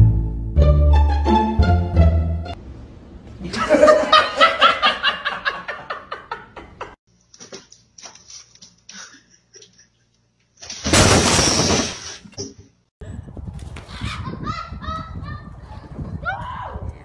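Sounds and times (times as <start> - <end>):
laughter: 3.4 - 7.0, 8.9 - 10.2, 14.1 - 15.5.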